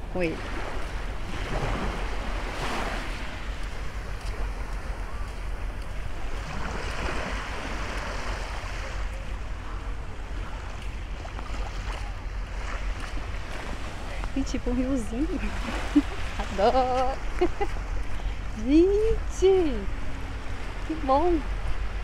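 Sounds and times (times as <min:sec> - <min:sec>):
small waves washing onto shore: 0:00.0 - 0:22.0.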